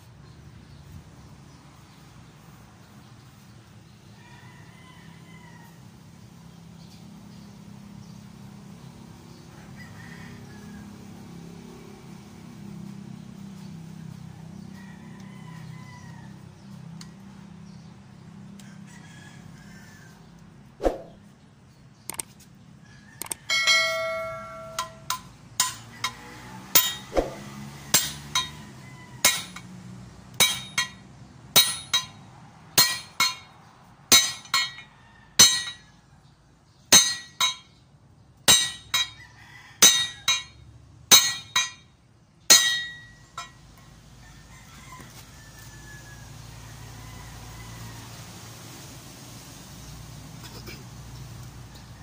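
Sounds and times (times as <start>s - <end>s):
hammer striking metal: 23.2s - 29.7s, 30.3s - 35.8s, 36.9s - 37.8s, 38.5s - 39.2s, 39.8s - 41.9s, 42.5s - 43.6s.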